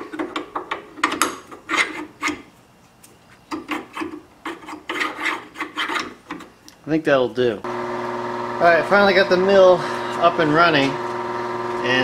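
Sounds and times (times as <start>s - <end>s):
piston scraping in cylinder bore: 0.1s - 2.5s, 3.5s - 6.6s.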